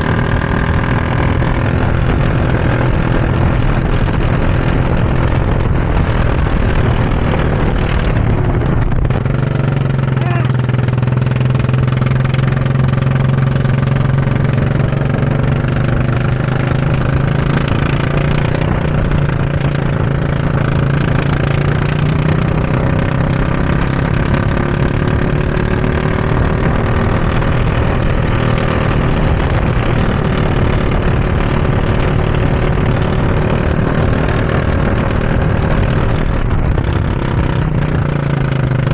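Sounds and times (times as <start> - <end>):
go-kart engine running hard: 0.0 - 38.9.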